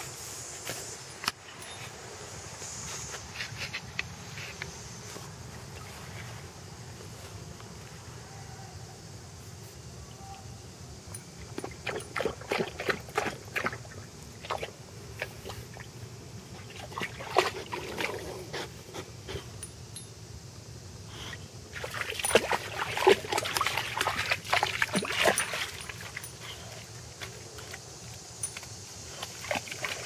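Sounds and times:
dog splashing through water: 11.6 - 15.5, 16.5 - 18.7, 21.8 - 27.8, 29.2 - 30.0.

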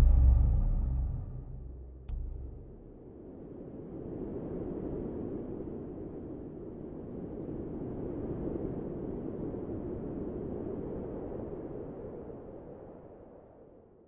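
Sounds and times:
low rushing noise: 0.0 - 3.1.

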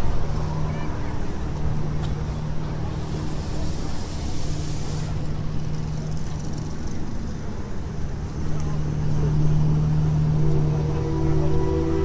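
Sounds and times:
engine humming steadily: 0.0 - 12.0
hissing rush: 2.8 - 5.3.

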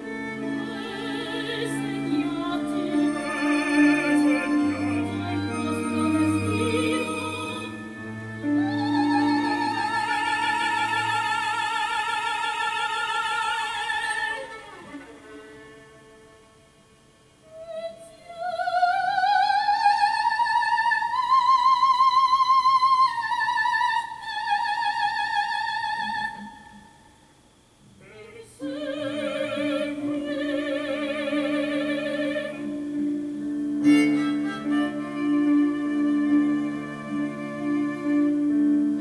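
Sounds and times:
low sustained strings: 0.0 - 13.2.

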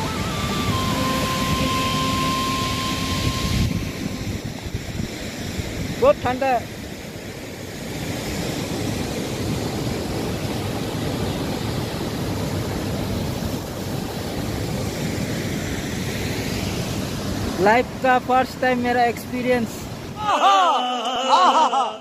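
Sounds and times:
wind buffeting microphone: 0.0 - 7.1
waterfall rushing: 0.0 - 21.7
fast river: 0.0 - 22.0.

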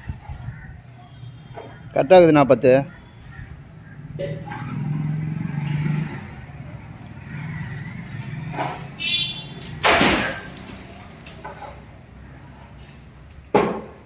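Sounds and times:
traffic noise: 0.0 - 14.0
vehicle engine running: 3.6 - 13.0.

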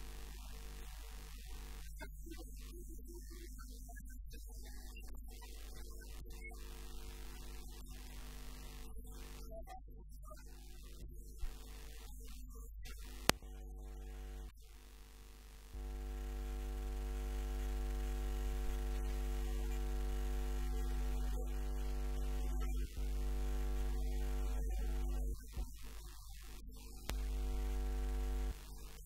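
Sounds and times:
electrical mains hum: 13.2 - 14.5, 15.7 - 25.3, 27.0 - 28.6.

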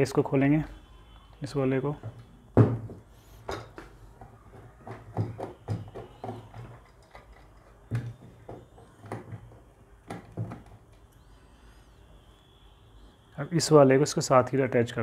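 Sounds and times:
clicks and knocks on plastic: 2.0 - 11.0.

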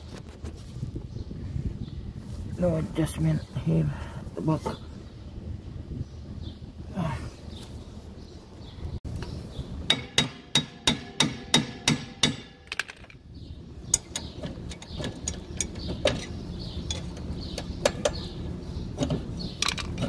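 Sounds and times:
metal on metal clicks: 13.9 - 18.2.

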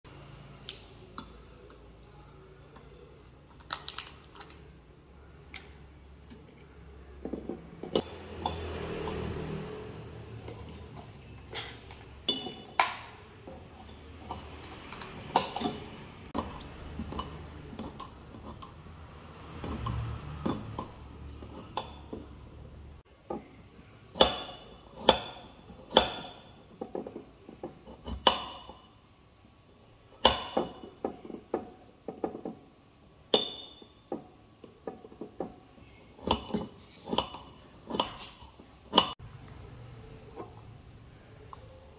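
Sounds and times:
metal pots and dishes clinking: 7.2 - 9.6, 10.4 - 18.9, 19.5 - 22.3, 33.3 - 35.6, 36.2 - 39.2.

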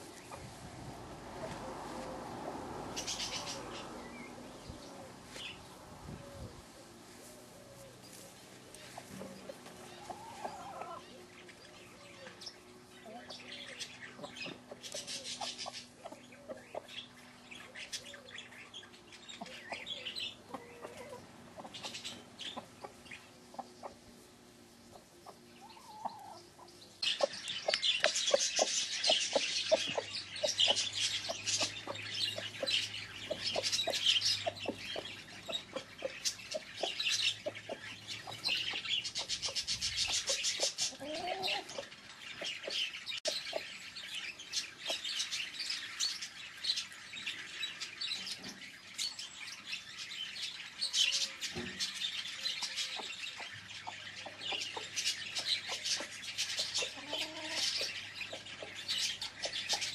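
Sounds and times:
hens clucking: 1.3 - 2.1, 7.5 - 18.2, 19.0 - 43.8, 52.5 - 59.9.

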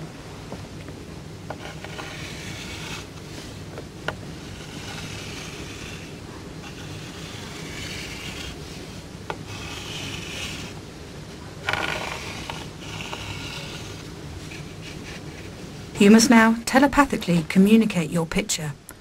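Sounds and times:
chalk scraping on blackboard: 1.5 - 3.6, 4.4 - 10.8, 11.7 - 15.6.

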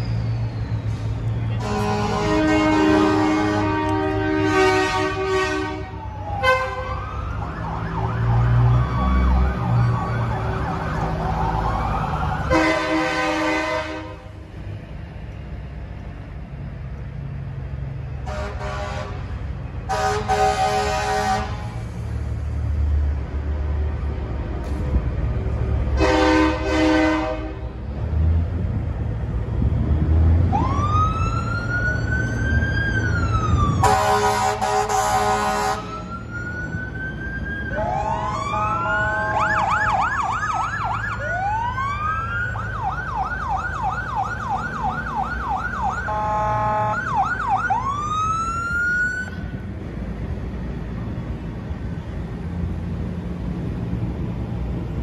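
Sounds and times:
fire engine sirens wailing: 0.0 - 14.8, 18.2 - 22.8, 24.9 - 27.8, 29.3 - 55.0
diesel engines rumbling: 0.0 - 55.0
air horns blasting: 1.5 - 7.0, 12.5 - 14.3, 18.2 - 19.3, 19.9 - 21.9, 26.0 - 27.8, 33.8 - 36.0, 45.9 - 47.2.

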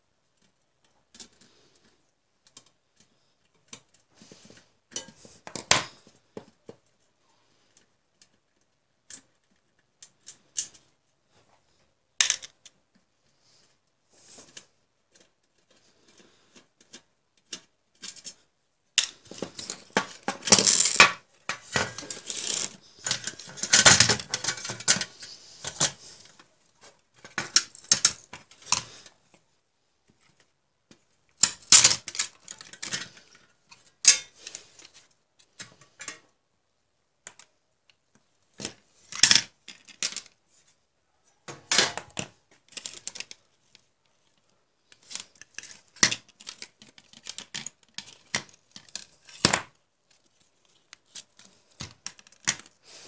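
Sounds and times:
monitor parts clicking and rattling: 14.4 - 29.4, 30.1 - 36.3, 41.4 - 52.8.

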